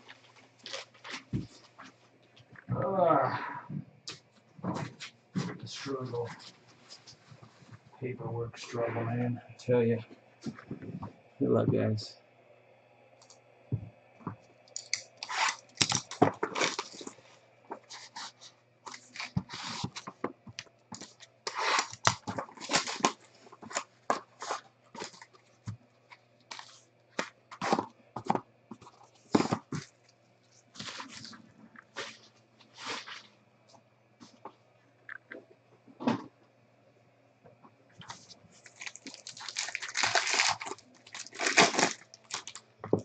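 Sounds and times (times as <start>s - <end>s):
cellophane crinkling and tearing: 0.0s - 1.9s, 14.8s - 20.2s, 20.9s - 25.5s, 26.5s - 27.8s, 30.8s - 33.3s, 38.0s - 42.7s.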